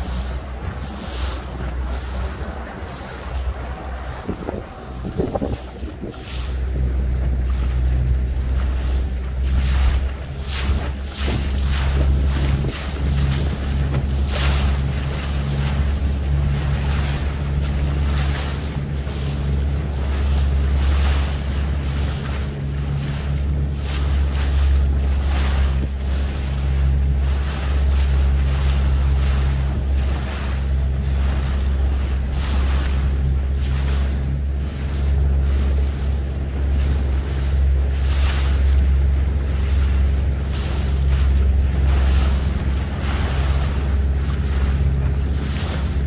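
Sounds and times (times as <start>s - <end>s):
boat engine humming: 0.0s - 46.0s
water splashing against hull: 0.0s - 46.0s
wind on microphone: 0.0s - 46.0s.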